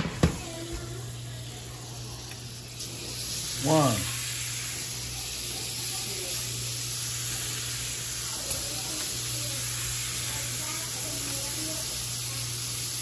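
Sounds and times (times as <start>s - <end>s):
fish sizzling in butter: 0.3s - 13.0s.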